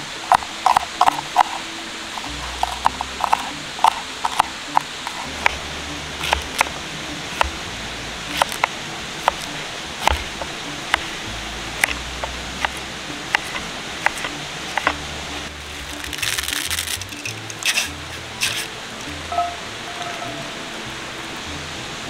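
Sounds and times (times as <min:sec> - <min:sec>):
steady hiss: 0:00.0 - 0:22.0
knife slicing vegetables: 0:00.3 - 0:01.6, 0:02.2 - 0:04.5, 0:06.2 - 0:06.7, 0:08.3 - 0:11.1, 0:11.8 - 0:15.0, 0:15.6 - 0:18.7.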